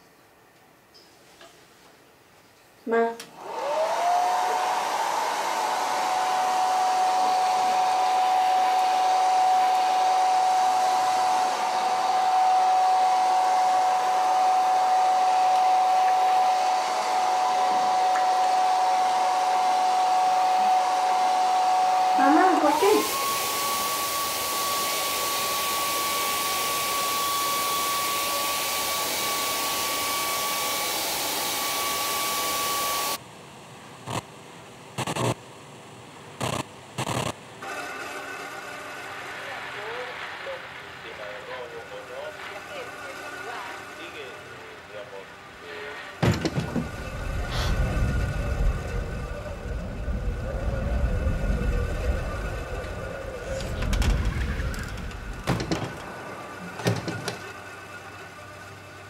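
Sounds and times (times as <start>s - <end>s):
hair dryer running: 3.2s - 33.2s, 46.2s - 57.5s.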